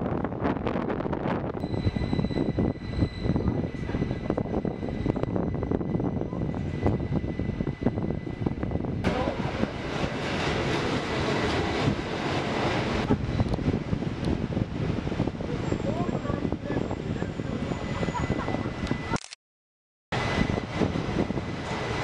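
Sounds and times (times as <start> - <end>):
train wheels rumbling on rails: 0.0 - 19.2, 20.2 - 22.0
wind on microphone: 0.0 - 19.2, 20.2 - 22.0
thin steady whine: 1.6 - 8.9.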